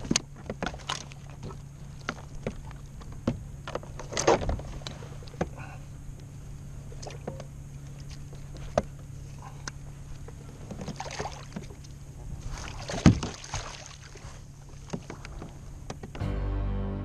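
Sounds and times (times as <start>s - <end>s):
water splashing: 10.7s - 15.7s.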